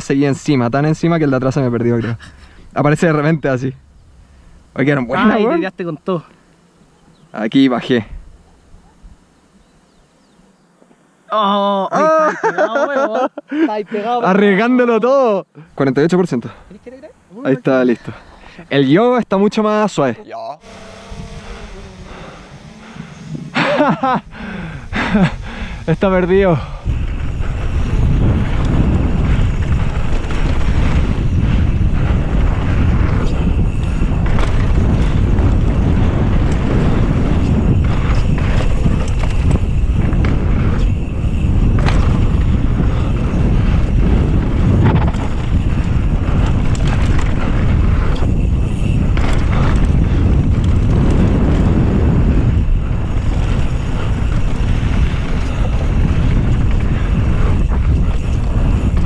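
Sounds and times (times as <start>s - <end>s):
wind buffeting microphone: 20.6s - 59.0s.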